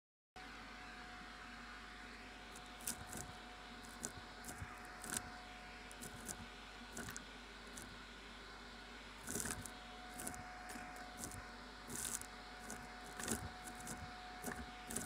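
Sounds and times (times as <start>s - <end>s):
vacuum cleaner running: 0.4s - 15.0s
debris rattling in nozzle: 5.9s - 6.4s, 7.0s - 7.9s, 9.2s - 15.0s.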